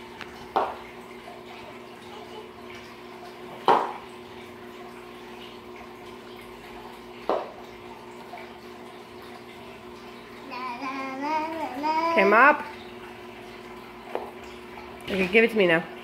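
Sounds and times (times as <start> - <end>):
spin mop knocking on tile floor: 3.6 - 4.0.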